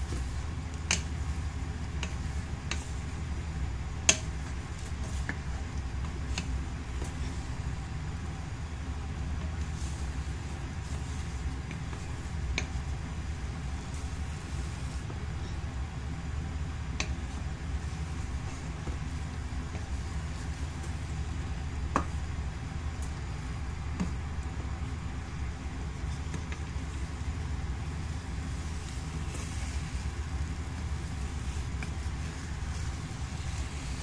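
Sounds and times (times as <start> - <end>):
spatula stirring eggs in pan: 0.0 - 34.0
spatula tapping pan: 0.1 - 3.0, 4.0 - 7.4, 10.8 - 13.0.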